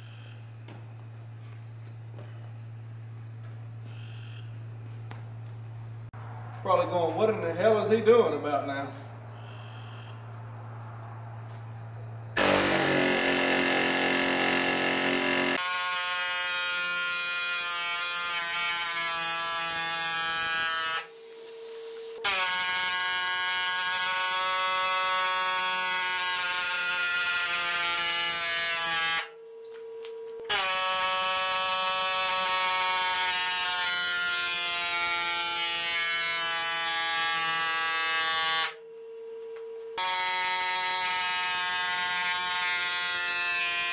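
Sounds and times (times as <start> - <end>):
air hammer driving rod: 12.4 - 15.6.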